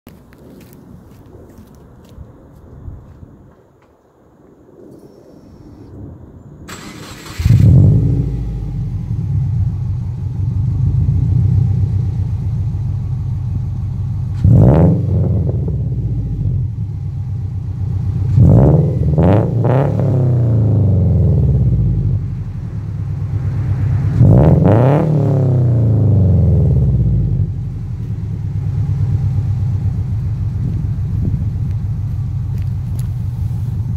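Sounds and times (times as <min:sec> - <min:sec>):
engine revving: 0:06.7 - 0:12.5, 0:14.2 - 0:16.8, 0:17.9 - 0:27.8
car engine idling: 0:06.7 - 0:19.3, 0:20.1 - 0:33.9
car engine starting: 0:06.7 - 0:33.9.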